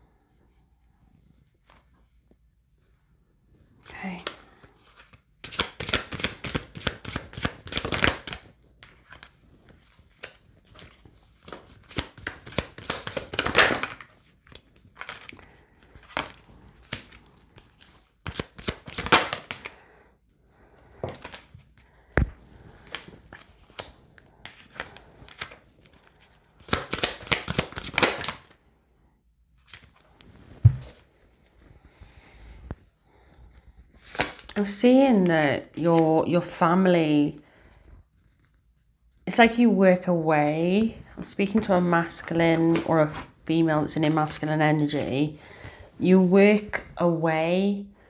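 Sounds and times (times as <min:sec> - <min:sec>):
quiet card handling: 0:03.8 - 0:19.8, 0:20.6 - 0:28.6, 0:29.5 - 0:36.1, 0:38.0 - 0:39.3
cards flicking and slapping: 0:05.0 - 0:19.8, 0:21.0 - 0:28.6, 0:29.6 - 0:30.8, 0:34.0 - 0:34.6.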